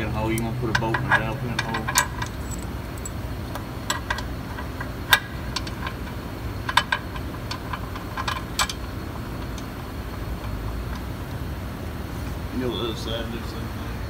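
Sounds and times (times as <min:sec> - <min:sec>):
metallic clicks of tools and bolts: 0:00.0 - 0:09.7
low steady hum: 0:00.0 - 0:14.0.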